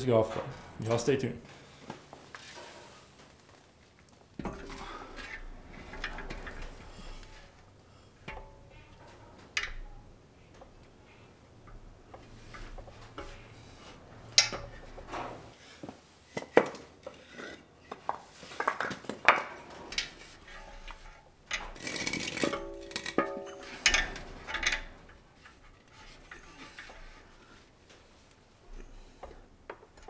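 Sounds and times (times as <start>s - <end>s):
metal clanking and knocking: 4.4s - 15.6s, 18.8s - 27.5s
metal scraping: 4.4s - 15.6s, 19.5s - 30.0s.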